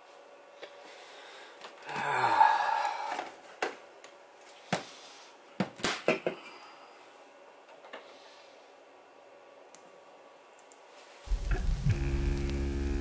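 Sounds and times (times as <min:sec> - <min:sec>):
rushing noise: 0:11.3 - 0:13.0.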